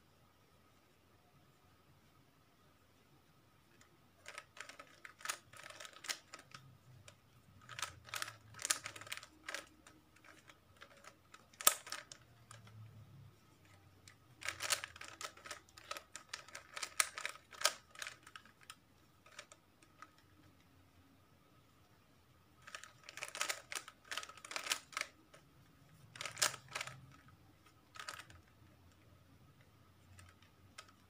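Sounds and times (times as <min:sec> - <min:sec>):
puzzle cube clicking: 0:03.8 - 0:12.8, 0:13.6 - 0:20.7, 0:22.6 - 0:25.5, 0:26.1 - 0:31.0.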